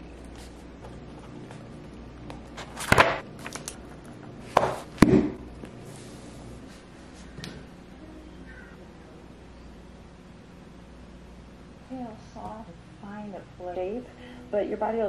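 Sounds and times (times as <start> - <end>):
book knocking on countertop: 4.5 - 5.4.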